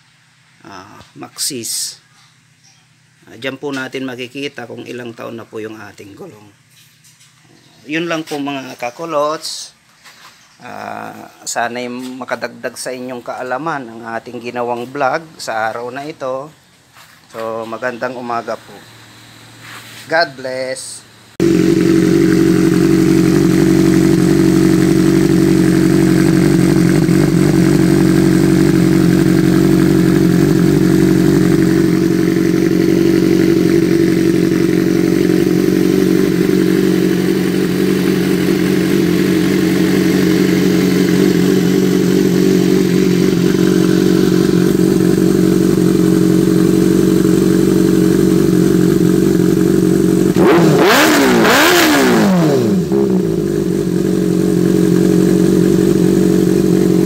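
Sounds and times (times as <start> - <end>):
motorcycle engine idling: 21.4 - 57.0.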